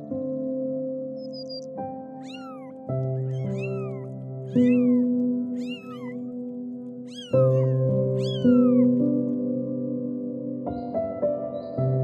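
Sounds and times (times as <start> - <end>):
kitten meowing: 2.2 - 6.4, 7.0 - 9.1.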